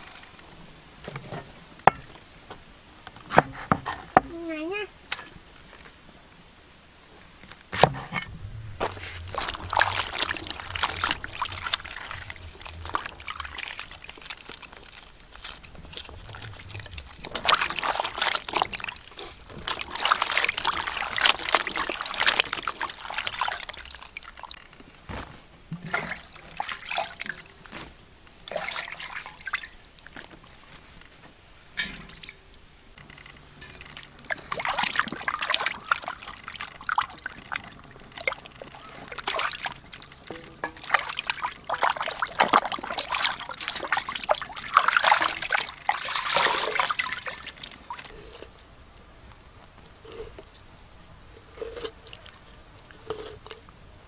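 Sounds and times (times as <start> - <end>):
water splashing in a metal bowl: 8.1 - 24.7, 25.8 - 27.7, 28.4 - 30.2, 31.8 - 48.6, 49.8 - 53.7.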